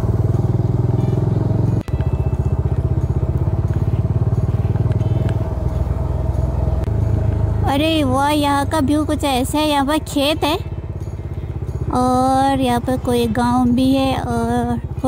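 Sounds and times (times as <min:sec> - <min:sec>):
car engine: 0:00.0 - 0:15.0
road noise: 0:00.0 - 0:15.0.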